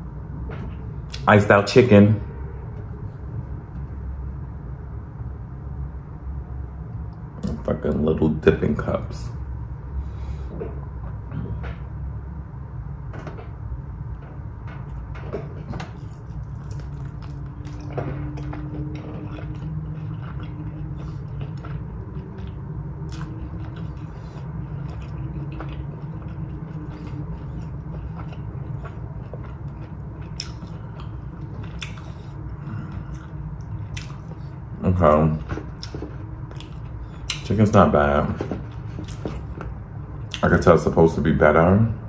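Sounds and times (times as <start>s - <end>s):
low background hum: 0.0s - 42.0s
person chewing food: 14.2s - 40.5s.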